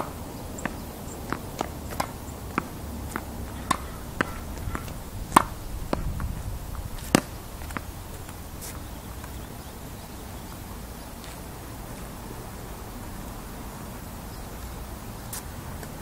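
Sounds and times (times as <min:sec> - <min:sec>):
ball hitting wall: 0:00.0 - 0:08.0
ball bouncing on hard court: 0:00.0 - 0:09.4
racket hitting tennis ball: 0:00.0 - 0:09.4.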